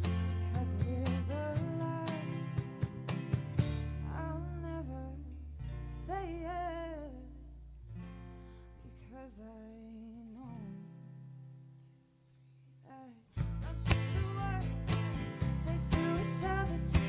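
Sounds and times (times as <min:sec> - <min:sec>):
woman singing softly: 0:00.0 - 0:02.9, 0:04.0 - 0:07.6, 0:08.8 - 0:10.9, 0:12.8 - 0:17.0
bass notes: 0:00.0 - 0:05.7, 0:13.4 - 0:17.0
guitar: 0:00.0 - 0:17.0.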